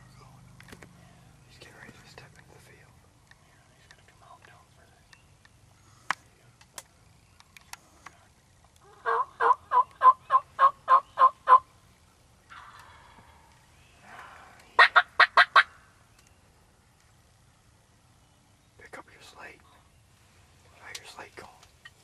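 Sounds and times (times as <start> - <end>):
turkey yelping: 8.8 - 11.7, 12.5 - 13.3, 14.8 - 15.8.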